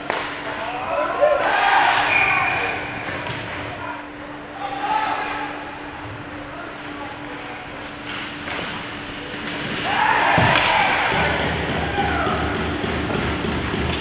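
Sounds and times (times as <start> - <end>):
players shouting: 0.6 - 2.9, 9.8 - 13.2.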